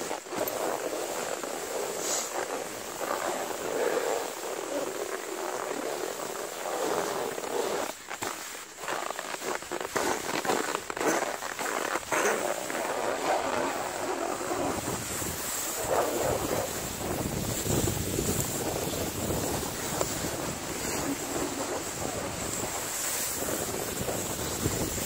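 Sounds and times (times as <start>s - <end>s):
skis scraping over snow: 0.0s - 25.0s
wind buffeting microphone: 13.1s - 25.0s.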